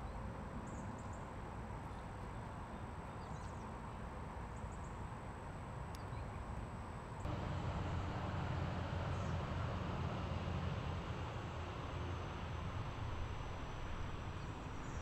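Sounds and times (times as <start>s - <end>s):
low rumble: 7.3s - 15.0s.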